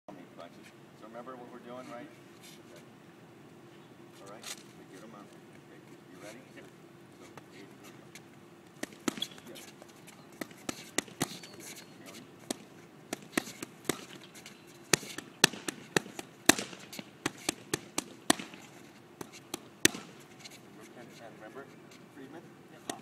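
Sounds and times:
boxing gloves punching mitts: 8.8 - 9.6, 10.4 - 20.3.

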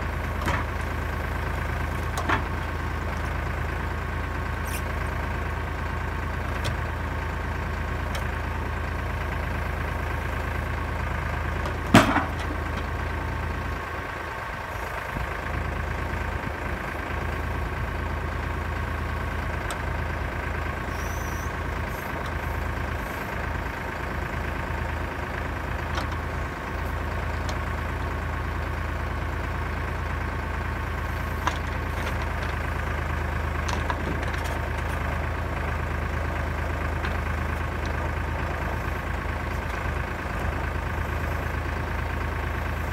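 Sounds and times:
tractor diesel engine running: 0.0 - 42.9
hydraulic whine: 20.8 - 23.6.

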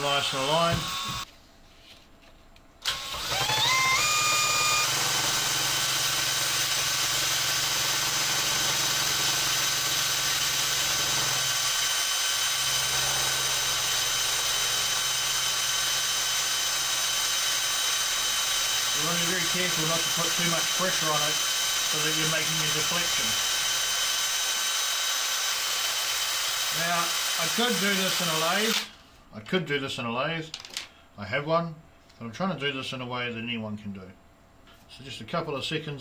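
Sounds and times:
cordless drill whining: 0.0 - 1.3, 2.8 - 29.0.

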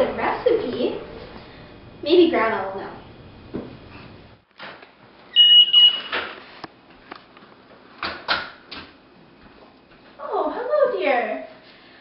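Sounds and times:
high electronic beep: 5.4 - 6.1.

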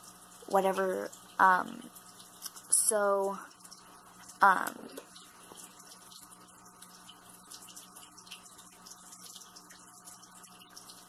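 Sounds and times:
low even hum: 0.0 - 11.0.

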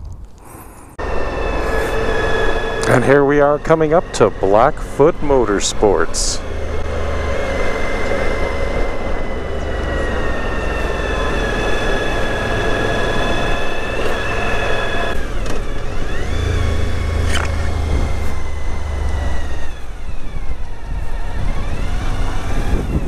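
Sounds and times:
motorcycle engine running: 1.0 - 23.0
heavy wind noise: 16.9 - 23.0.

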